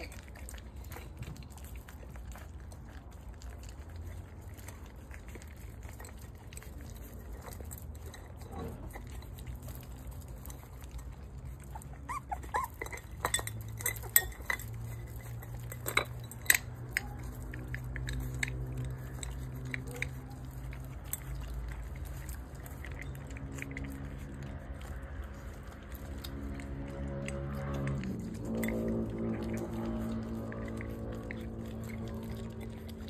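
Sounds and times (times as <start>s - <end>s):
puppies chewing: 0.0s - 33.0s
puppy whimpers: 10.9s - 15.6s
food bowl clinking: 12.1s - 20.0s, 28.1s - 31.1s.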